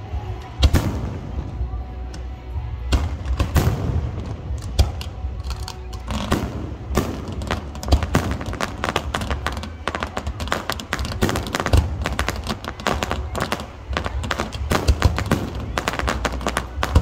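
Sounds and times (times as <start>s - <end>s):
music playing: 0.0s - 17.0s
fireworks bangs and booms: 2.8s - 5.3s, 6.0s - 17.0s.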